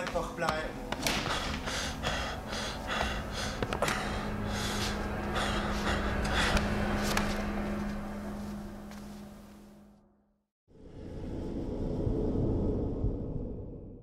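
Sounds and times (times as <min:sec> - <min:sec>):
man breathing heavily in gasps: 0:01.1 - 0:07.0.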